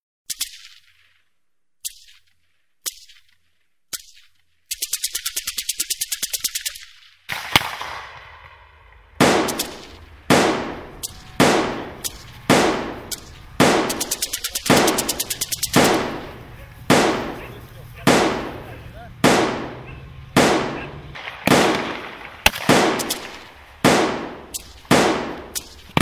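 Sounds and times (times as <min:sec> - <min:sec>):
heavy gunshots with echo: 0:07.3 - 0:26.0
rifle single shots: 0:07.3 - 0:26.0
automatic gunfire burst: 0:09.2 - 0:26.0.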